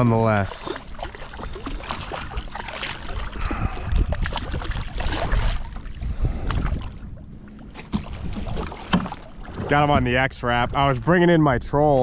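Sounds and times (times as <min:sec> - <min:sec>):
fish splashing at water surface: 0:00.6 - 0:06.9
wind rumble on microphone: 0:01.4 - 0:12.0.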